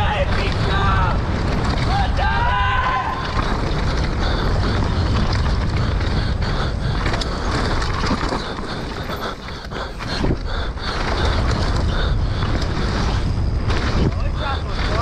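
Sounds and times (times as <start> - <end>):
bike knocks and rattles: 0.0 - 10.2
tyres on dirt: 0.0 - 15.0
wind rushing over microphone: 0.0 - 15.0.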